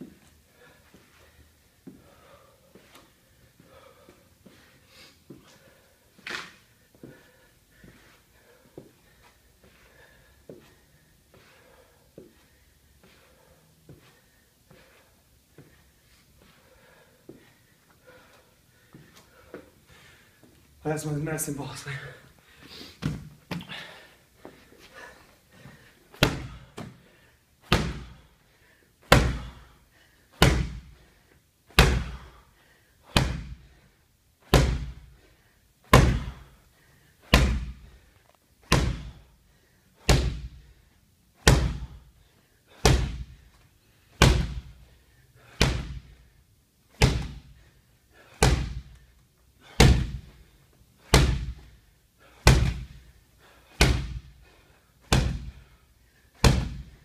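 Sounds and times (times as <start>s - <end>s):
medicine ball thudding on rubber floor: 26.2s - 27.0s, 27.6s - 28.2s, 29.1s - 29.6s, 30.4s - 31.0s, 31.7s - 32.3s, 33.1s - 33.7s, 34.5s - 35.1s, 35.9s - 36.5s, 37.3s - 37.9s, 38.6s - 39.2s, 40.0s - 40.7s, 41.4s - 42.0s, 42.8s - 43.4s, 44.2s - 44.8s, 45.5s - 46.2s, 46.9s - 47.6s, 48.4s - 48.9s, 49.8s - 50.4s, 51.0s - 51.7s, 52.4s - 53.1s, 53.8s - 54.3s, 55.0s - 55.7s, 56.4s - 57.0s.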